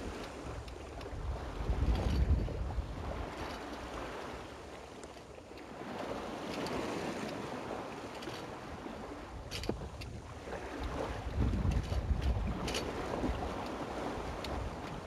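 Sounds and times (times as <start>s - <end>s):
wind buffeting microphone: 0.0s - 4.2s, 8.8s - 15.0s
water rushing along a hull: 0.0s - 15.0s.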